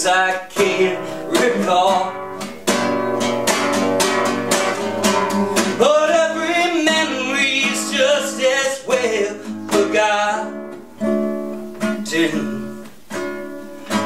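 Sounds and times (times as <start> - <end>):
man singing long notes: 0.0 - 2.4, 5.8 - 10.7
classical guitar strumming: 0.0 - 14.0.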